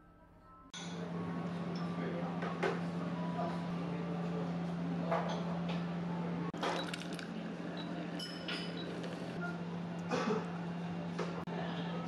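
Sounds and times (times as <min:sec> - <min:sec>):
coffee dispenser humming: 0:00.9 - 0:12.0
ceramic cup clinking: 0:08.2 - 0:09.1.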